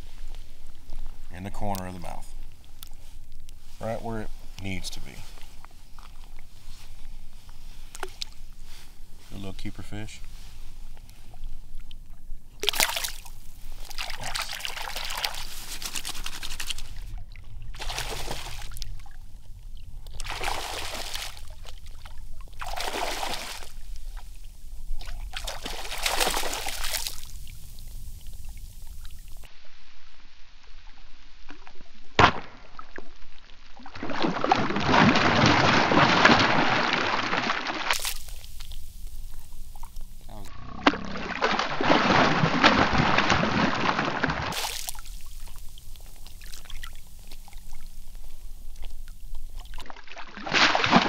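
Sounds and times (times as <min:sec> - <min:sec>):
fish splashing in water: 0:12.6 - 0:29.5, 0:41.1 - 0:51.0.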